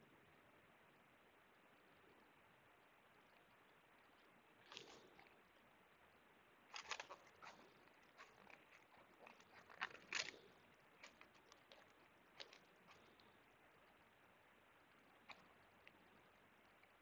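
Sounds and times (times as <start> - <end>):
crisp clicks and rustles of cable: 4.1 - 5.4, 6.7 - 14.1, 14.9 - 16.0.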